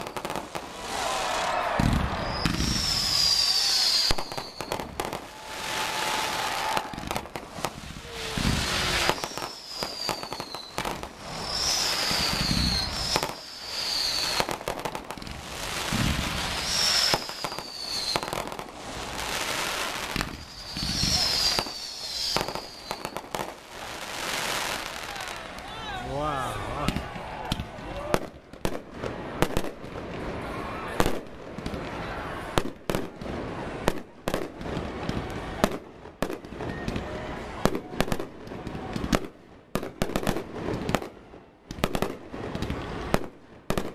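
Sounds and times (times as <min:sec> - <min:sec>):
firework shells booming: 0:00.0 - 0:19.2, 0:20.0 - 0:23.6
falling firework whistles: 0:00.0 - 0:25.3
fireworks crackling: 0:00.0 - 0:43.9.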